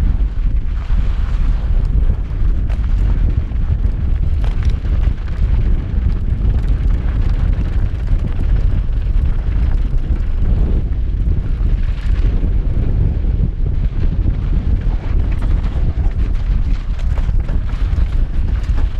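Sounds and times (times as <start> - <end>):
wind buffeting microphone: 0.0 - 18.9
tyres crunching over dirt and rocks: 14.6 - 18.9.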